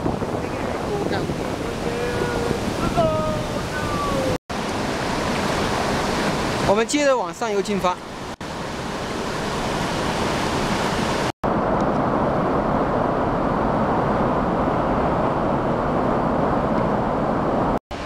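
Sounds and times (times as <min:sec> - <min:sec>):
whitewater rushing over rocks: 0:00.0 - 0:11.8.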